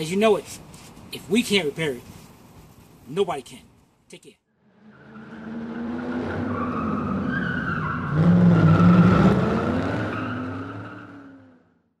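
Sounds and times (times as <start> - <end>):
car engine revving: 4.6 - 11.8.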